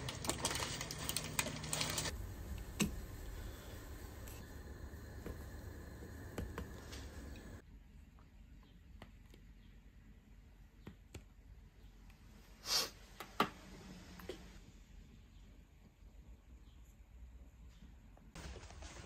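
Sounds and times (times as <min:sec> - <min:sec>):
noodles simmering in a pot: 0:00.0 - 0:07.6.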